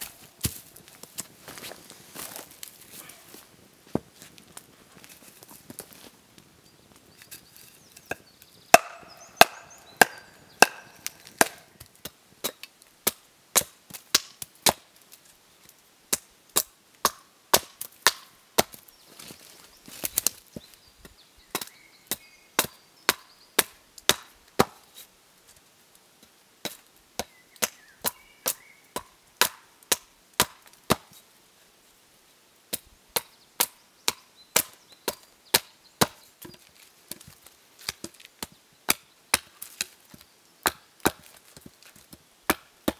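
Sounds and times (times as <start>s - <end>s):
hatchet chopping wood: 8.1s - 14.8s, 16.1s - 18.8s, 21.5s - 24.9s, 26.6s - 31.1s, 32.7s - 40.0s, 40.6s - 41.4s, 42.5s - 42.9s.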